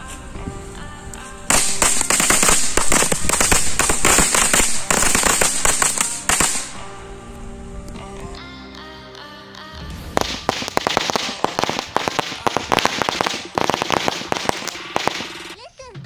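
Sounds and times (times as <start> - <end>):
background music: 0.0 - 16.0
firecracker string cracking: 1.1 - 8.0, 9.8 - 15.6.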